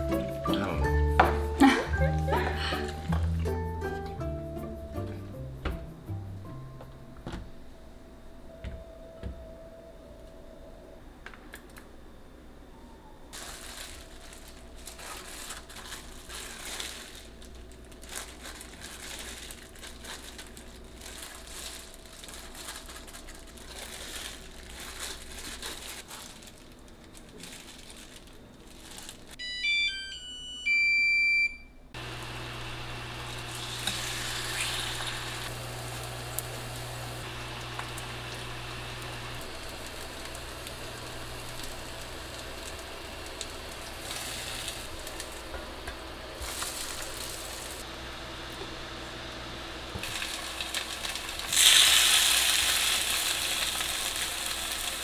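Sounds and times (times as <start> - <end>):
cooktop low hum: 0.0 - 55.0
plastic glove crinkling: 13.3 - 29.4, 33.4 - 47.9, 50.0 - 55.0
electronic beep melody: 29.4 - 31.7.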